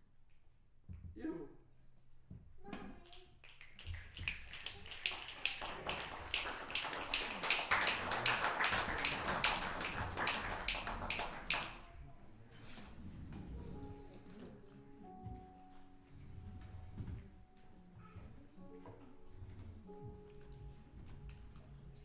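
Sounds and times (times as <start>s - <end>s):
small audience applauding: 3.0s - 12.0s.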